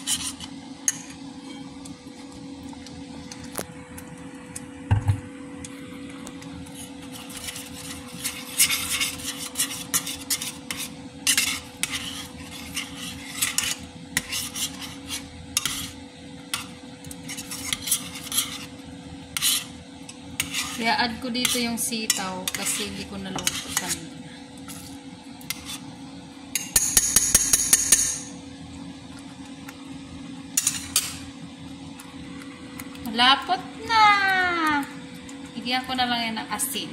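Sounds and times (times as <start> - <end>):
metal spoon scraping a pot: 0.0 - 1.6, 6.7 - 19.8, 20.4 - 24.1, 24.7 - 25.9.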